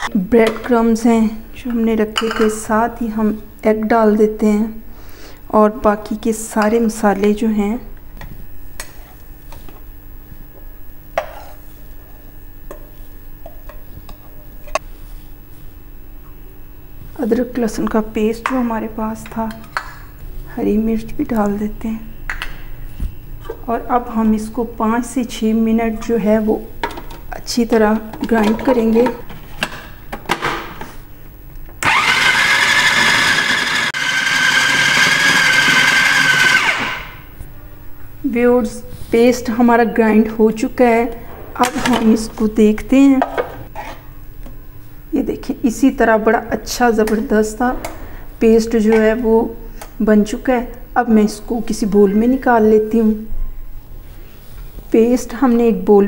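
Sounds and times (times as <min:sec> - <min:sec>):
food processor motor whine: 0:31.8 - 0:37.3.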